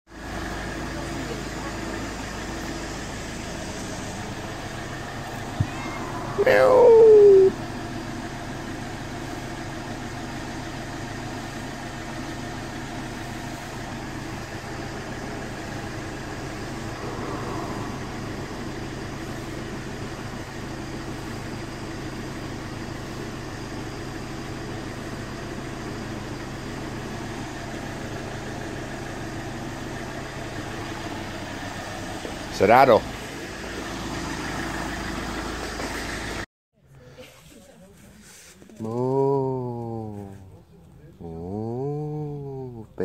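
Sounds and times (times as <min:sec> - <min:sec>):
mechanical hum: 0:01.3 - 0:34.4.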